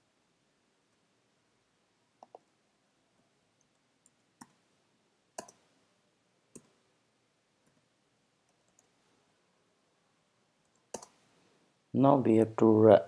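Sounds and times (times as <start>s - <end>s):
computer keyboard keystrokes: 5.4s - 5.6s, 10.8s - 11.2s.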